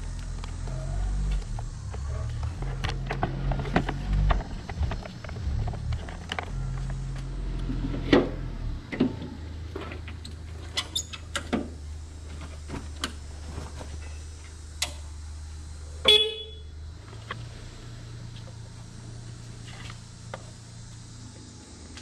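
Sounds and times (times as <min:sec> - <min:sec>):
steady low hum: 0:00.0 - 0:22.0
pallet jack horn beep: 0:16.1 - 0:16.7.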